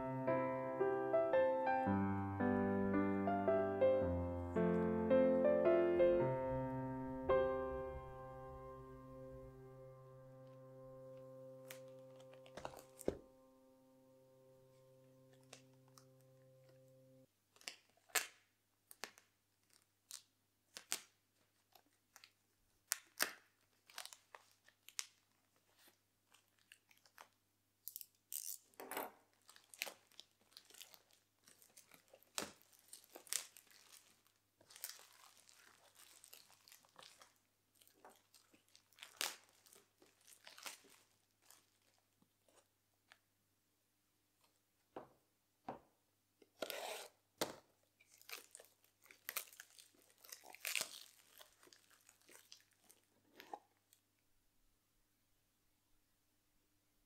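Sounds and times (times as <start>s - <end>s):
soft background music: 0.0s - 17.2s
plastic wrap crinkling and tearing: 11.6s - 13.2s, 17.5s - 42.6s, 48.0s - 54.0s.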